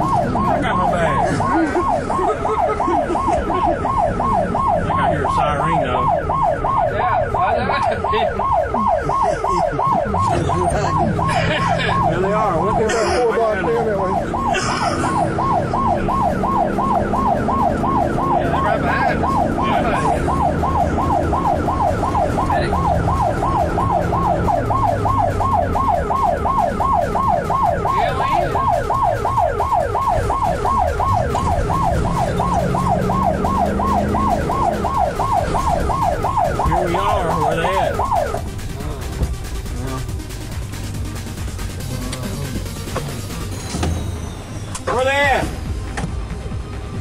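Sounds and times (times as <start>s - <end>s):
siren in fast yelp mode: 0.0s - 39.2s
road noise: 0.0s - 47.0s
vehicle engine rumble: 0.0s - 47.0s.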